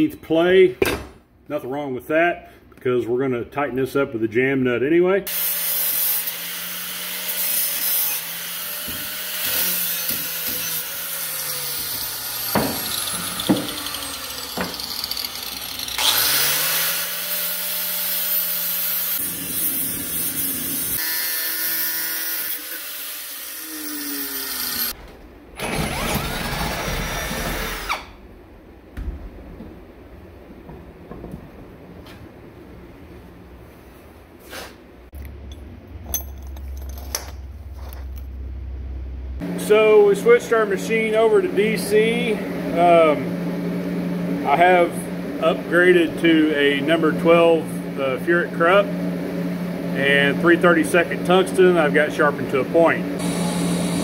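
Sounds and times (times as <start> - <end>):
angle grinder grinding steel: 5.3 - 25.0
cordless drill running: 10.6 - 19.2, 53.2 - 54.0.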